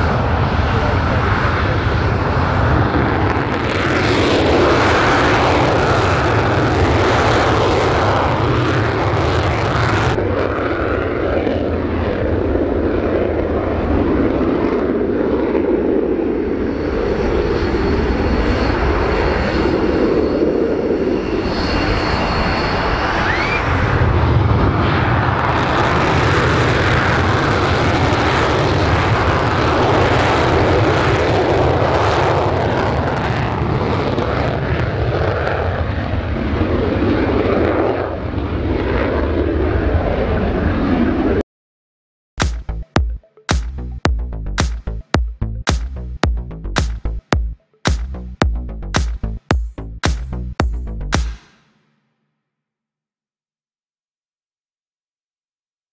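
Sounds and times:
jet engine roar: 0.0 - 41.4
high whine: 42.4 - 52.1.

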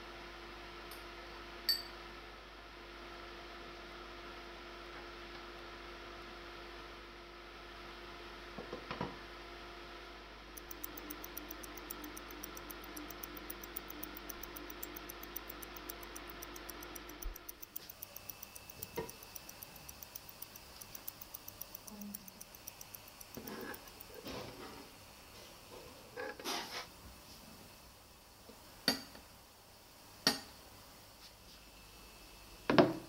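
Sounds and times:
timer ticking: 10.6 - 24.6.

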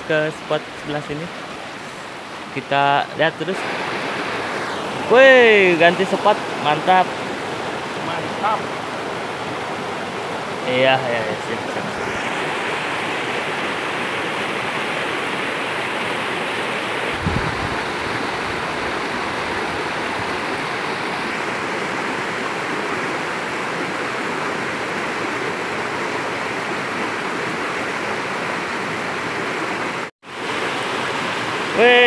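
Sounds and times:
stream rushing over rocks: 0.0 - 32.0.

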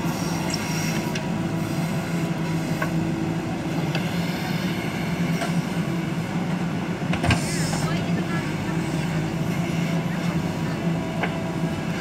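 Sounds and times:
diesel engine running under load: 0.0 - 12.0.

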